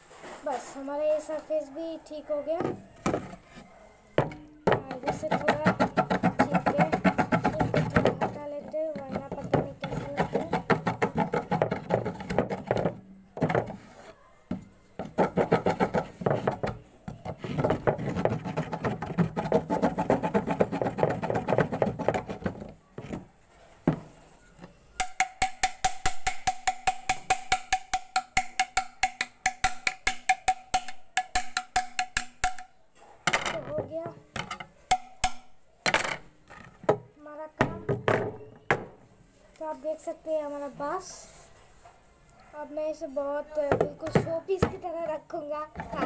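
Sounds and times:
hacksaw rasping on bamboo: 0:17.3 - 0:22.7.

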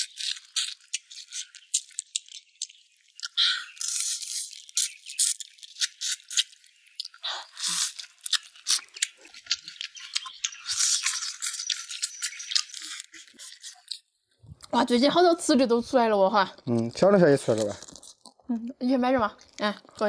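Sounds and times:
wet chewing and gnawing: 0:00.0 - 0:14.8, 0:16.4 - 0:18.6, 0:19.2 - 0:20.0.

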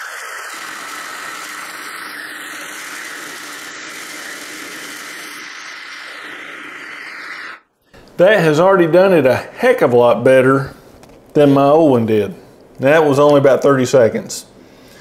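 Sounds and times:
food chopper running: 0:00.0 - 0:07.6.

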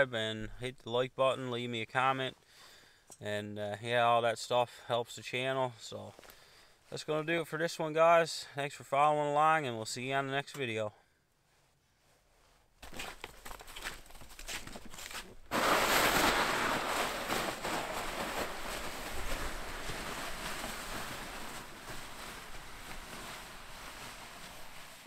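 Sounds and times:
footsteps crunching in snow: 0:12.8 - 0:25.0
crackly rushing noise: 0:15.4 - 0:25.0.

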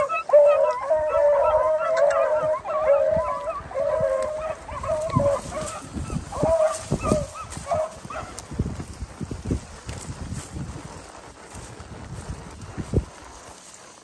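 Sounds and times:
dogs baying: 0:00.0 - 0:08.4.

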